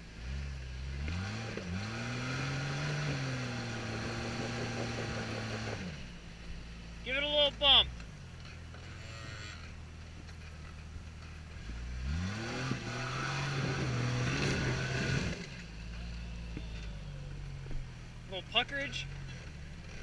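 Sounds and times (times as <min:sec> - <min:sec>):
car engine idling and revving: 0:00.0 - 0:20.0.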